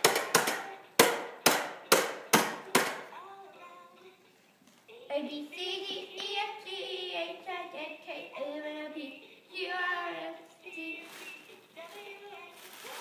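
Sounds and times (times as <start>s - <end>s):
high child-like voice singing: 2.7s - 4.3s, 4.9s - 13.0s.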